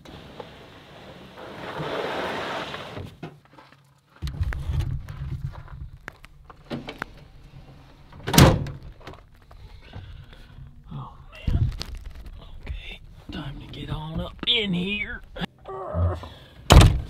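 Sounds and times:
loud thump: 16.7s - 17.0s.

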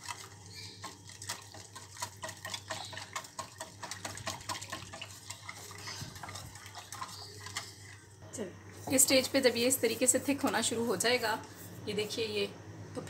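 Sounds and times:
whisk clicking against saucepan: 0.0s - 8.0s.

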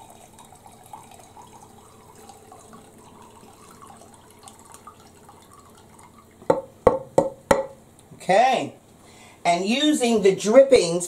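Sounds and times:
oil trickling into pot: 0.0s - 7.1s.

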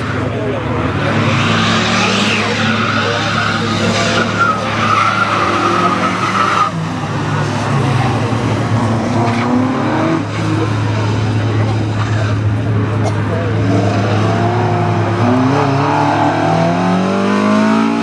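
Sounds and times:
car accelerating: 0.0s - 18.0s
car engine running hard: 0.0s - 18.0s
tyres squealing: 1.4s - 7.9s.

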